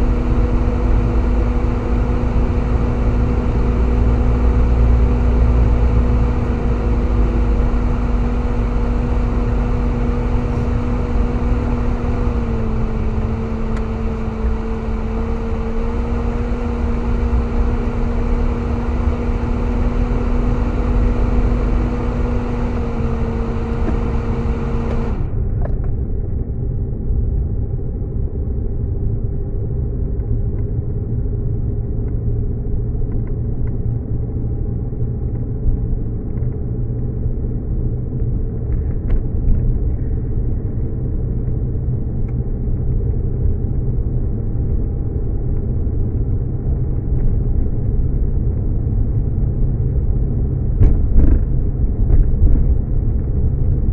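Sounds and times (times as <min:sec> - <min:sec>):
humming tone: 0:00.0 - 0:25.7
engine and tyre rumble: 0:00.0 - 0:53.9.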